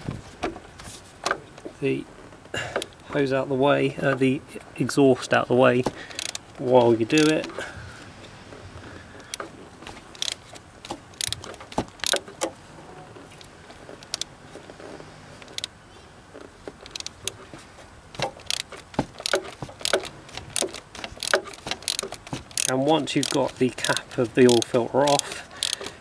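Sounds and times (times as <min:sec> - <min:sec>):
ratchet wrench clicking: 0:06.1 - 0:07.5, 0:10.1 - 0:12.5, 0:14.0 - 0:14.3, 0:16.8 - 0:17.4, 0:18.2 - 0:26.0.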